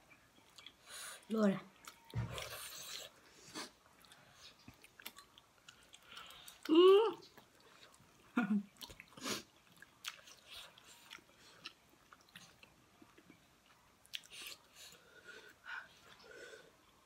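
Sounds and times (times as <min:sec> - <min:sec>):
people chewing and lip-smacking: 0:00.0 - 0:17.0.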